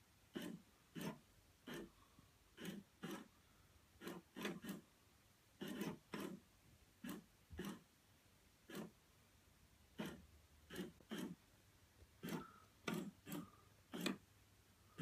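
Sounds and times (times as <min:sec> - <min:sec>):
toy motor whirring: 0:00.3 - 0:01.9, 0:02.6 - 0:03.3, 0:04.0 - 0:04.8, 0:05.6 - 0:06.4, 0:07.0 - 0:07.8, 0:08.7 - 0:09.0, 0:10.0 - 0:11.4, 0:12.2 - 0:14.2.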